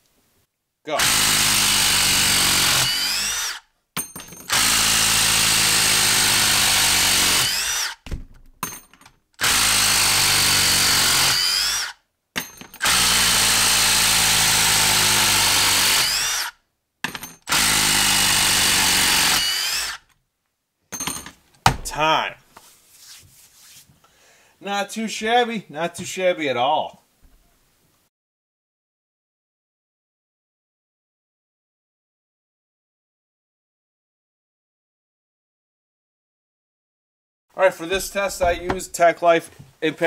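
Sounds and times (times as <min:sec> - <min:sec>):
impact driver hammering screws: 0:01.0 - 0:20.2.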